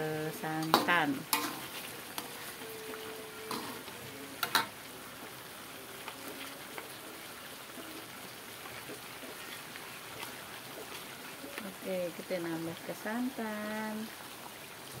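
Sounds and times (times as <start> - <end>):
fish sizzling in a wok: 0.0 - 15.0.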